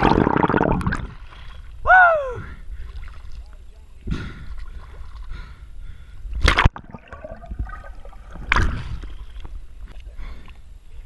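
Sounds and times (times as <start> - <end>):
water sloshing and gurgling: 0.0 - 1.8, 2.4 - 11.0.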